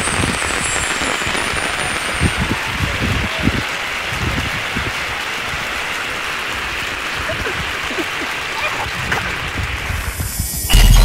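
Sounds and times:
wind buffeting microphone: 0:00.0 - 0:05.8, 0:08.7 - 0:10.7.

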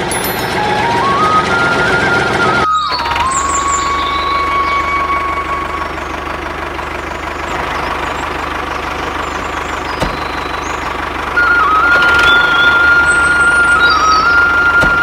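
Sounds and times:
toy tractor engine running: 0:00.0 - 0:15.0
high steady tone: 0:09.4 - 0:15.0.

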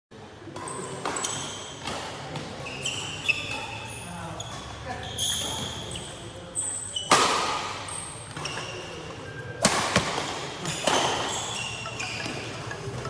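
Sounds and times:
shoes squeaking on court: 0:00.6 - 0:09.4, 0:10.6 - 0:13.0
rackets hitting shuttlecock: 0:07.0 - 0:08.5, 0:09.6 - 0:13.0.

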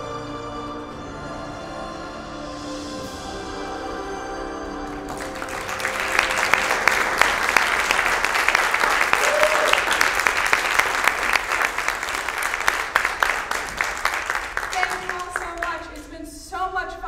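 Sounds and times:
music: 0:00.0 - 0:09.2
audience applauding: 0:04.9 - 0:16.0.

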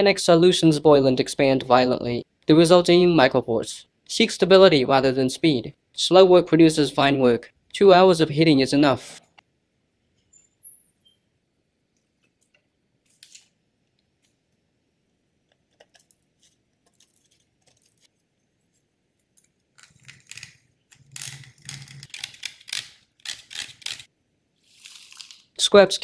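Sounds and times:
crackling and crunching mesh: 0:15.5 - 0:25.6.

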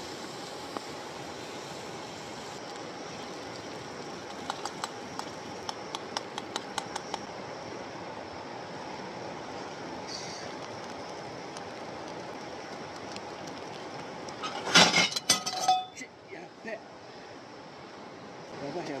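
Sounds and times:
sharp clicks: 0:04.4 - 0:07.3.

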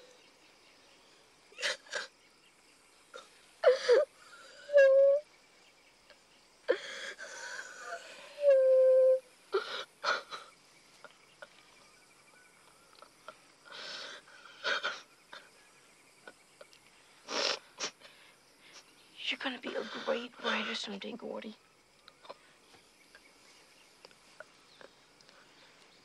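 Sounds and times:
boy sobbing and wailing: 0:03.6 - 0:05.2, 0:09.6 - 0:10.5.

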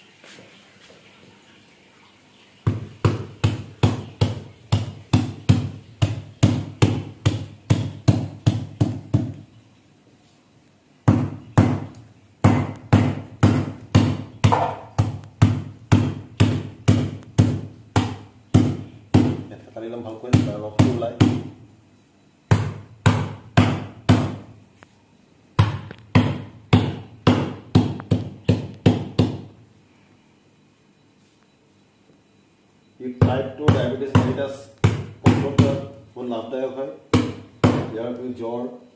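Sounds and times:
stems pounded on stone counter: 0:02.7 - 0:09.5, 0:11.0 - 0:19.5.

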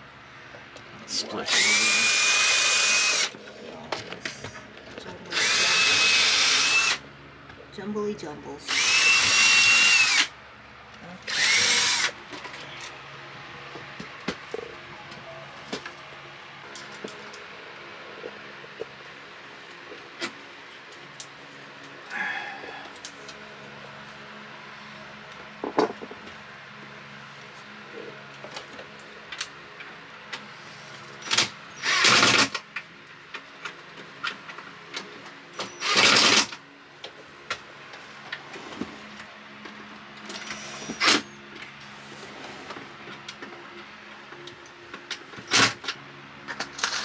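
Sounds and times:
cordless drill bursts: 0:01.5 - 0:03.3, 0:05.3 - 0:07.0, 0:08.7 - 0:10.3, 0:11.3 - 0:12.2, 0:31.2 - 0:32.5, 0:35.6 - 0:36.5.

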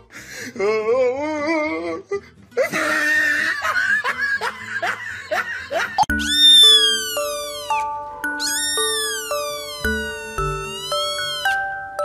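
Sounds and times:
person laughing: 0:02.6 - 0:06.1
high tone sliding downward: 0:06.1 - 0:11.8.

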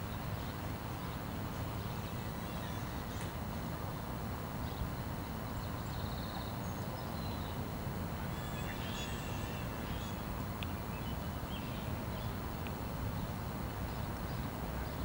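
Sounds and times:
low outdoor rumble: 0:00.0 - 0:15.0
small birds chirping: 0:04.6 - 0:15.0.

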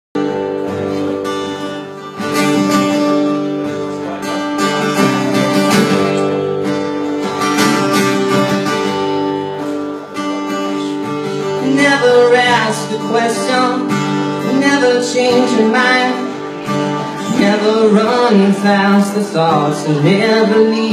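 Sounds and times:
amplified acoustic guitar strumming: 0:00.2 - 0:20.9
man singing: 0:10.2 - 0:20.9.

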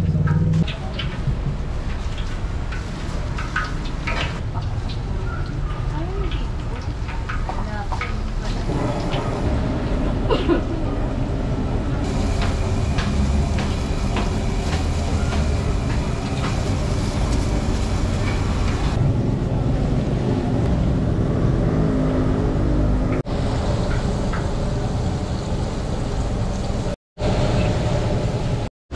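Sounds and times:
chicken deep-frying in oil: 0:00.6 - 0:09.9, 0:12.0 - 0:19.0.

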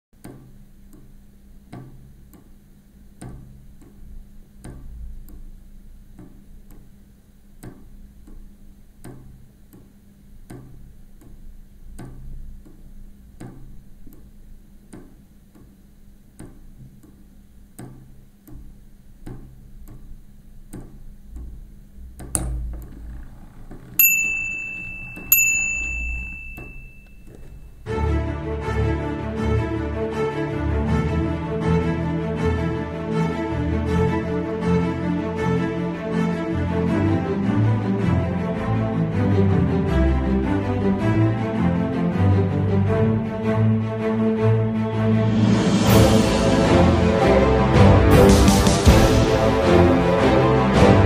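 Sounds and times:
clock bell ringing: 0:24.0 - 0:27.9.

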